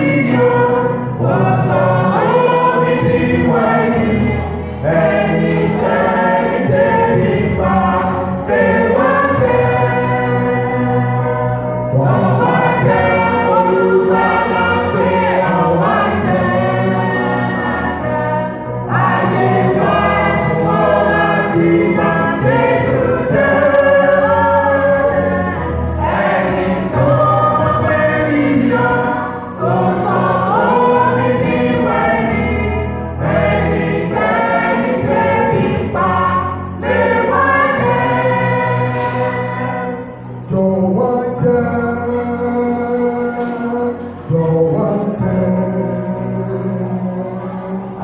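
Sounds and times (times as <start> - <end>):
church choir singing a hymn: 0.0 - 48.0.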